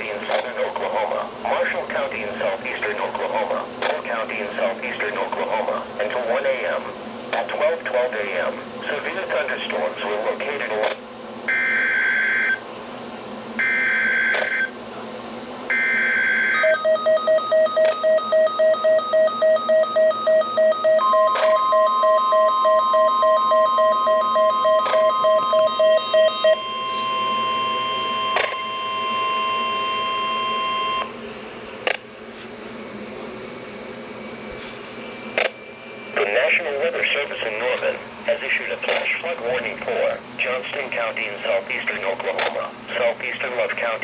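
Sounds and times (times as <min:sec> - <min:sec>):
steady warning alarm tone: 0:00.0 - 0:12.7, 0:13.5 - 0:14.8, 0:15.6 - 0:32.1
rapid alarm beeping: 0:11.5 - 0:12.6, 0:13.6 - 0:14.8, 0:15.7 - 0:31.2
warbling data screeches: 0:13.6 - 0:14.7, 0:18.9 - 0:31.1
sharp clicks: 0:35.4 - 0:35.6.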